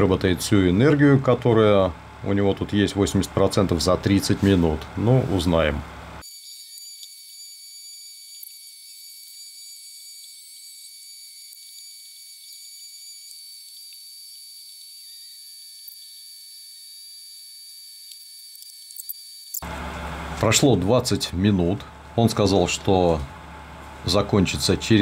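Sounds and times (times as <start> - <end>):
high-pitched multi-tone whine: 6.2 - 19.6.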